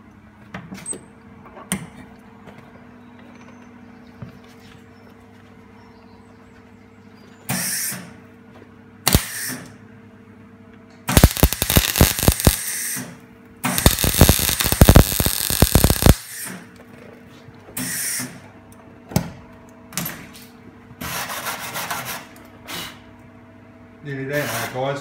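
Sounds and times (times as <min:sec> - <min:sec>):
welder arc crackling and sputtering: 0:09.1 - 0:09.5, 0:11.1 - 0:13.0, 0:13.6 - 0:16.4.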